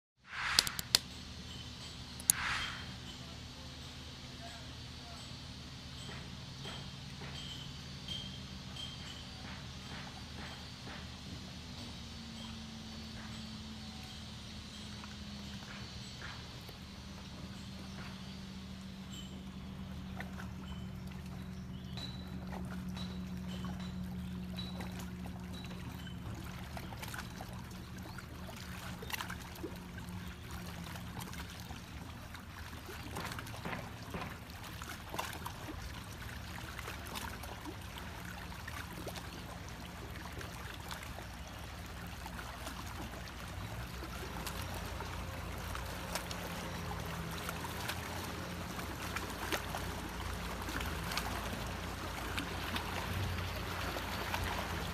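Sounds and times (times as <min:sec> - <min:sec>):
low steady hum: 0:00.4 - 0:54.9
small waves lapping on rocks: 0:22.4 - 0:54.9.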